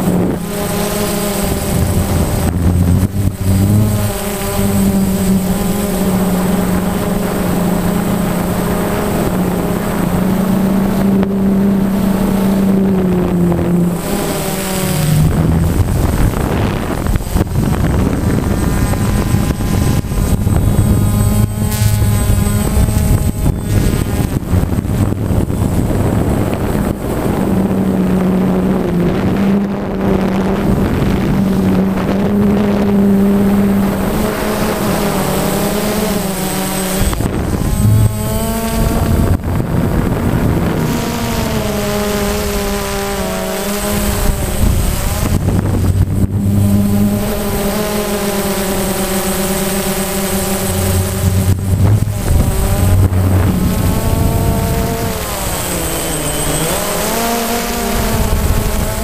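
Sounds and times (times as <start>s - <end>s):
rushing noise: 0.0s - 11.0s, 12.2s - 26.2s, 36.7s - 40.3s, 49.8s - 58.6s
drone propellers buzzing: 0.0s - 59.0s.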